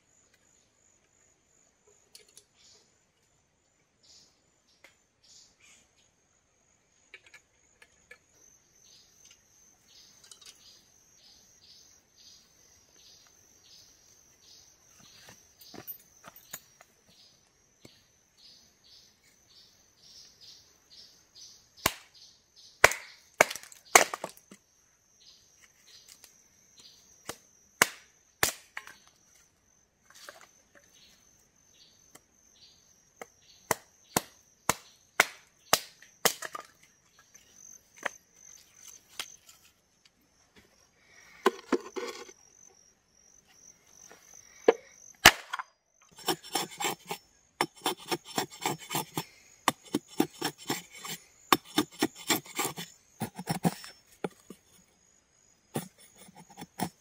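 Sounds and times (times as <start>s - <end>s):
hatchet chopping wood: 21.8s - 22.1s, 22.8s - 24.5s, 27.2s - 28.9s, 33.2s - 36.7s, 45.2s - 54.6s, 55.8s - 57.0s
wood splintering: 45.3s - 54.6s, 55.8s - 57.0s.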